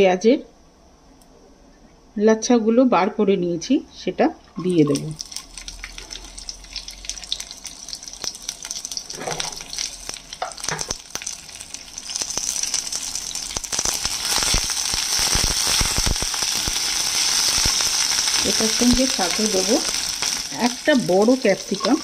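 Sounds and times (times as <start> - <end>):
food sizzling and crackling in oil: 4.6 - 22.0.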